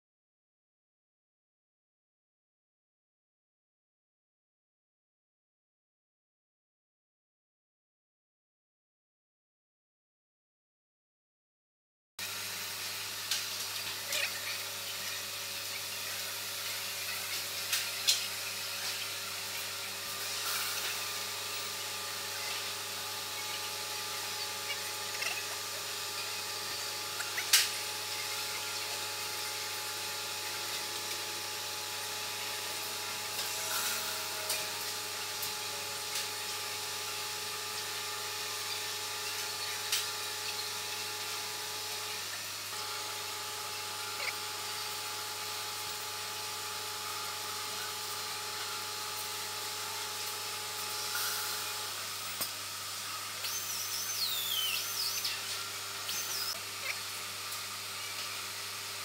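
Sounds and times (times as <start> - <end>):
machine hum and hiss: 12.2 - 59.0
held machine tones: 53.0 - 57.0
wavering high squeaks: 53.4 - 57.0.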